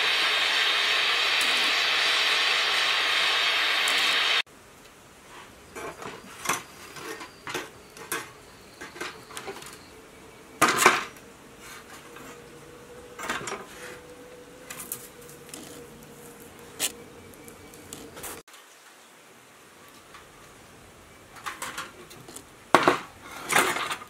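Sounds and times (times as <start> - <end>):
welding torch flame hissing: 0.0 - 4.5, 13.3 - 18.5.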